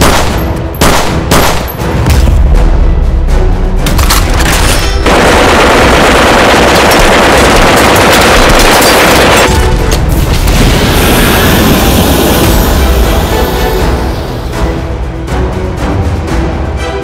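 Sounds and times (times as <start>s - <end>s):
machine-gun fire: 0.0s - 1.7s, 5.0s - 9.7s
heavy music: 0.0s - 17.0s.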